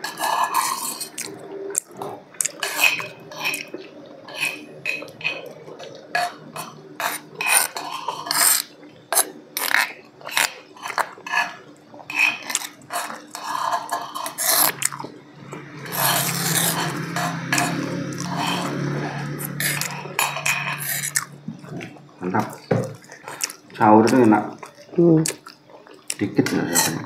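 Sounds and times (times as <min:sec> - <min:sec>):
metal spoons scraping on plates: 0:00.0 - 0:01.4, 0:02.4 - 0:21.4, 0:26.5 - 0:27.0
steady low hum: 0:00.0 - 0:27.0.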